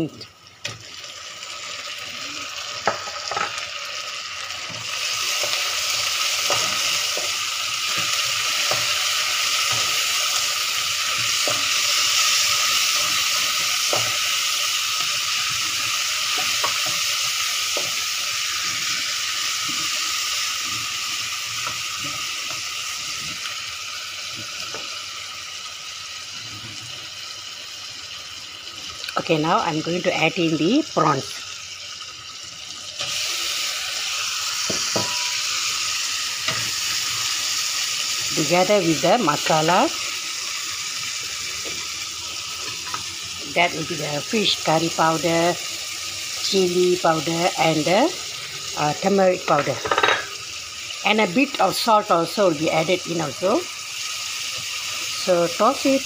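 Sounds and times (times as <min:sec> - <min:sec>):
food sizzling in hot oil: 0:00.0 - 0:56.0
spatula scraping a pan: 0:04.7 - 0:20.0, 0:33.0 - 0:35.7.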